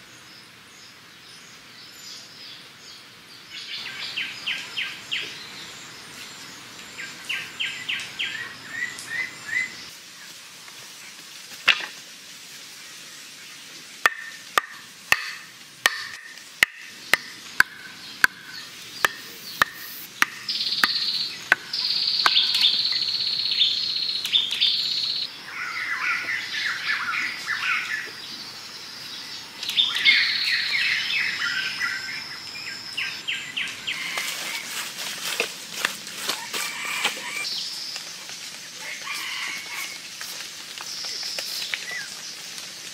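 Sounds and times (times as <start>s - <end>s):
wooden club knocking stakes: 14.0s - 22.8s
birds trilling: 14.1s - 34.9s, 36.3s - 38.0s.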